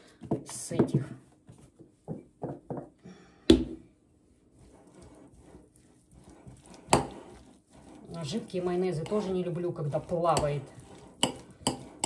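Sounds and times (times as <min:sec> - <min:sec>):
spoon mixing in a bowl: 0:04.3 - 0:12.0.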